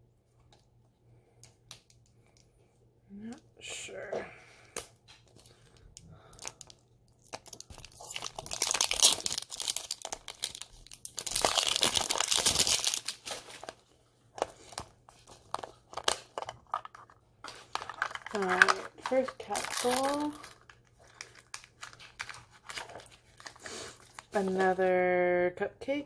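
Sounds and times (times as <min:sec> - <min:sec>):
plastic wrapper crinkling and tearing: 0:05.2 - 0:24.9.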